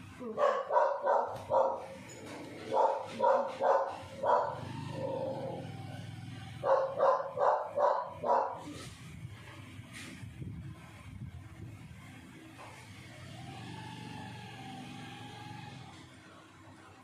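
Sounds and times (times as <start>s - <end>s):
dog barking: 0.3s - 2.0s, 2.6s - 5.7s, 6.6s - 8.8s.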